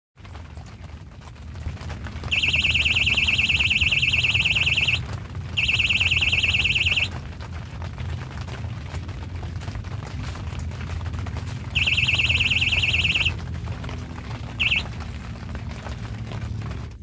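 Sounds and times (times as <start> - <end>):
low steady rumble: 0.2 - 17.0
fishing bite alarm warbling beep: 2.3 - 5.0, 5.6 - 7.1, 11.8 - 13.3, 14.6 - 14.9.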